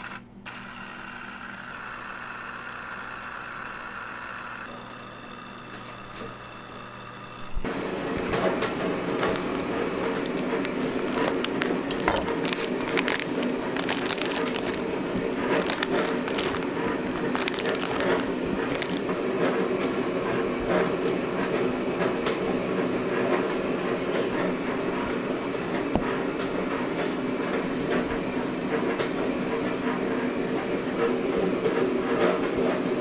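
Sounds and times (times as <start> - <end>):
kitchen machinery hum: 0.0 - 33.0
plastic packaging crinkling: 8.8 - 19.2.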